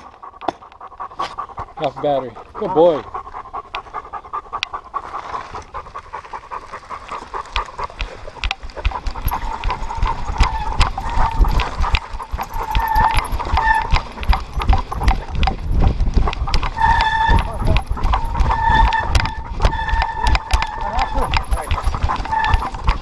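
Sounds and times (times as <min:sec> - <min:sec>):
dog panting: 0:00.0 - 0:23.0
paws on dirt: 0:00.0 - 0:23.0
wind rumble on microphone: 0:08.4 - 0:23.0.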